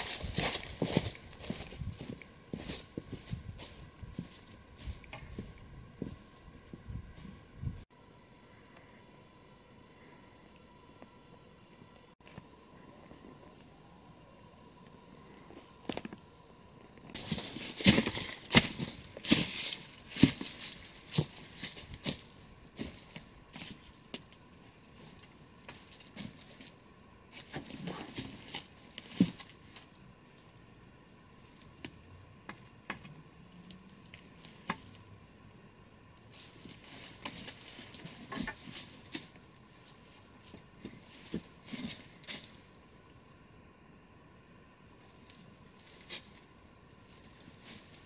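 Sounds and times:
footsteps crunching on leaves and stones: 0.0 - 7.8, 17.1 - 30.0, 36.3 - 42.8, 45.1 - 46.5, 47.1 - 48.0.

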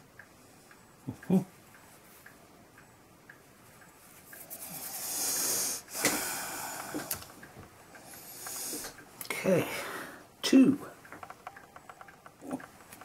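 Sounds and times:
person breathing heavily: 4.8 - 7.2, 8.0 - 9.0, 9.7 - 10.3.

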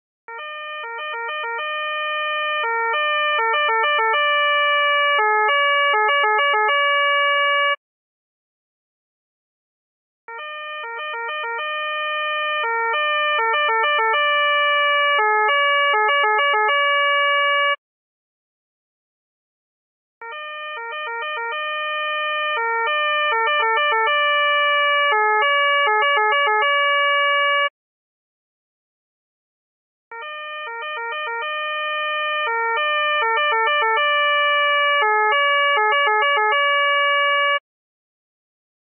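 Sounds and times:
police two-tone siren: 0.3 - 7.8, 10.3 - 17.8, 20.2 - 27.7, 30.1 - 37.6.

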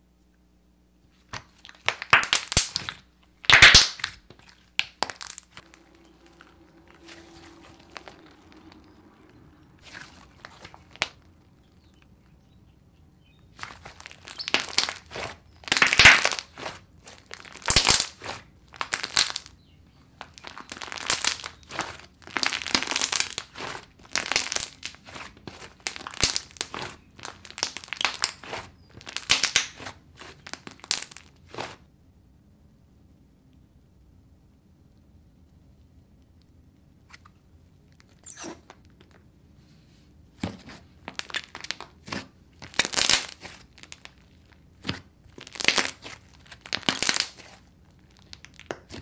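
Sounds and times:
slime squishing and crackling: 1.3 - 12.4, 13.4 - 31.8, 40.9 - 49.0.

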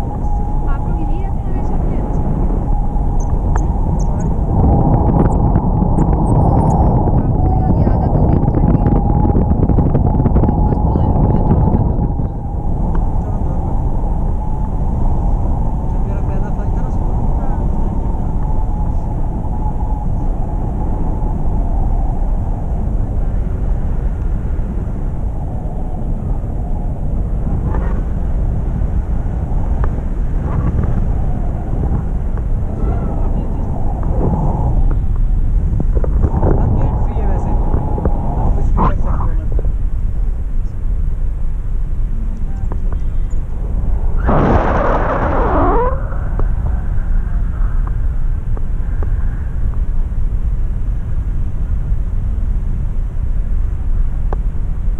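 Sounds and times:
wind rushing over microphone: 0.0 - 54.9
sliding tone: 43.3 - 47.7.

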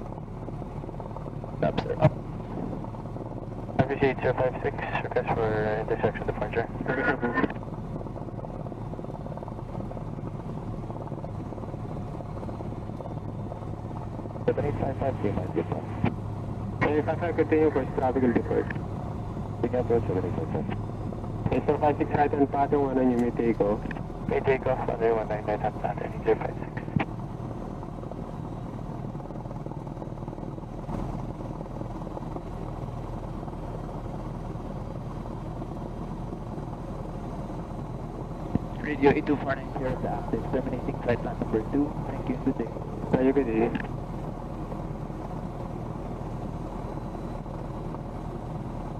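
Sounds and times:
plane engine and propeller: 0.0 - 48.9.

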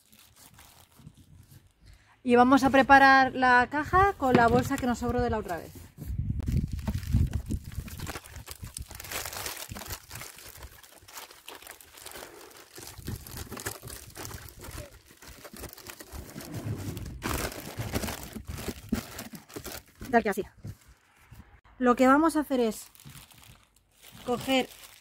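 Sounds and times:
plastic bag crinkling: 0.0 - 1.8, 6.5 - 20.3, 22.7 - 25.0.

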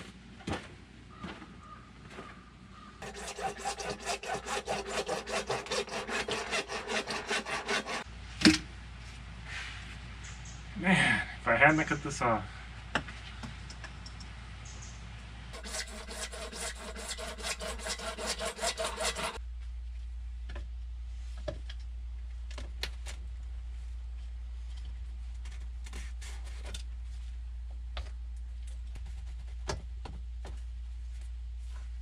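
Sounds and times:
hand saw cutting plastic pipe: 3.0 - 8.0, 15.6 - 19.4.

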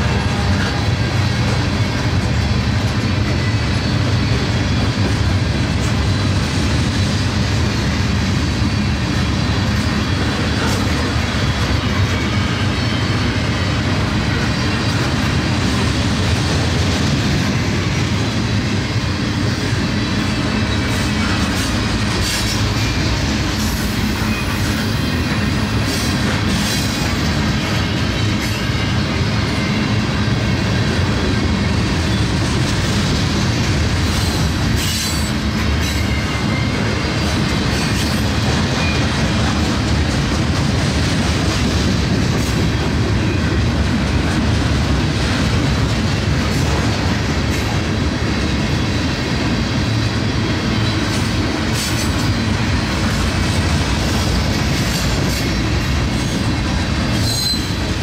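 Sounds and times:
train wheels clicking over rail joints: 0.0 - 58.0
wheel squeal: 57.1 - 58.0.

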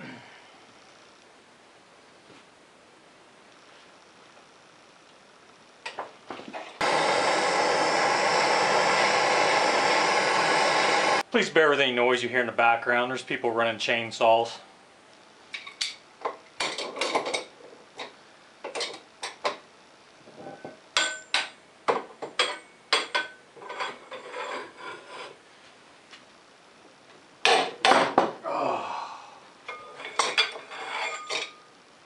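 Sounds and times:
metal clanks of hand tools: 29.7 - 31.6.

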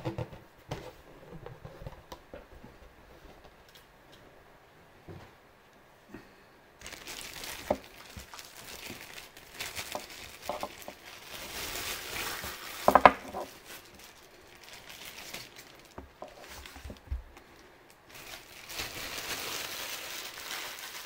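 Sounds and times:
plastic bag crinkling: 6.8 - 21.0.

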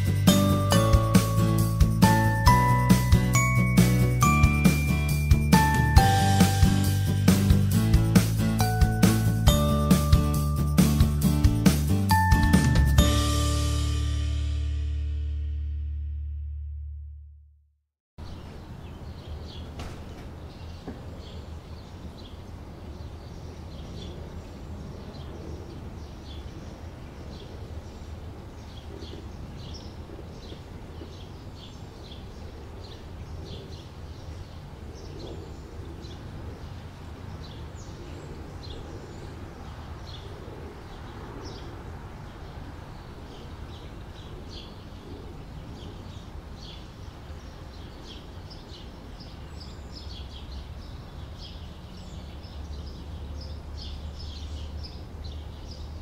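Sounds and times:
small birds chirping: 18.2 - 56.0.

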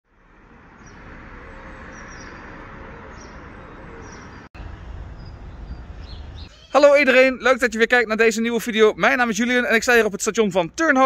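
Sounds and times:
small birds chirping: 0.8 - 7.2.

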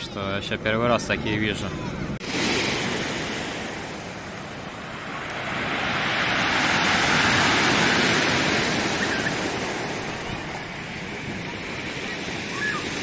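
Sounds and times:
surf breaking on pebble beach: 2.2 - 13.0.

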